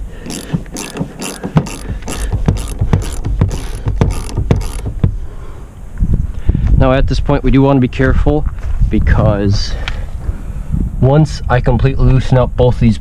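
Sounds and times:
ratchet wrench clicking: 0.2 - 5.0.

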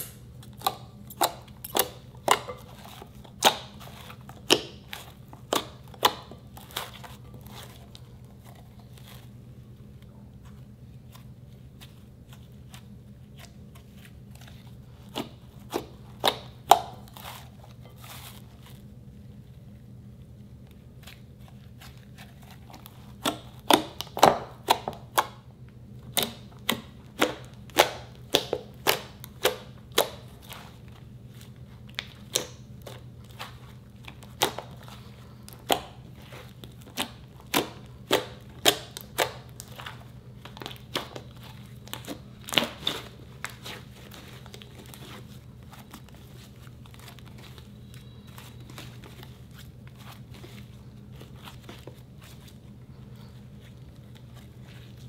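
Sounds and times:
low steady hum: 0.0 - 55.0
slime clicking and popping: 36.6 - 43.6.

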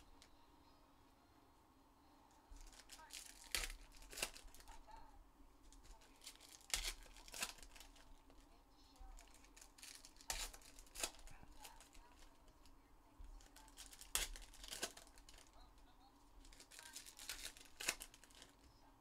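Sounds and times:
handling of cards: 2.4 - 4.9, 5.6 - 18.8
foil wrappers tearing and crinkling: 2.6 - 4.8, 5.7 - 8.4, 9.0 - 12.5, 13.3 - 15.6, 16.4 - 18.7.

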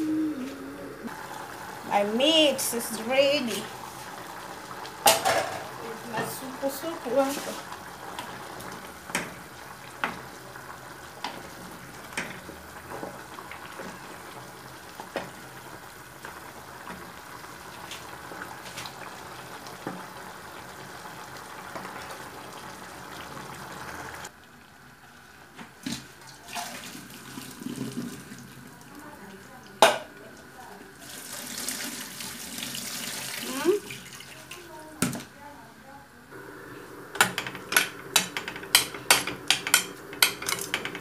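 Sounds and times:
soup bubbling in a pot: 1.0 - 2.7, 3.5 - 34.8, 36.3 - 41.0
wooden spoon knocking a pot: 37.2 - 41.0.

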